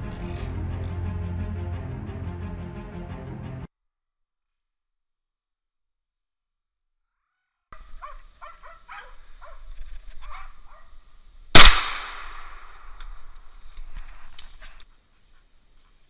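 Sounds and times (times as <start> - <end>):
dogs barking: 8.0 - 9.6, 10.2 - 10.9
gunshot with echo: 11.6 - 12.8.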